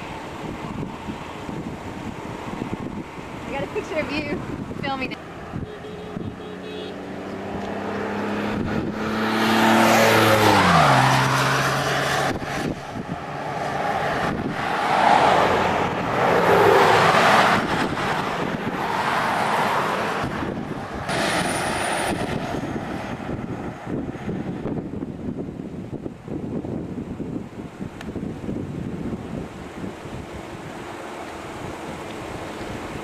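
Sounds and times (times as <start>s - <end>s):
vehicle engine humming: 0.0s - 27.4s, 28.1s - 33.0s
wind buffeting microphone: 0.0s - 33.0s.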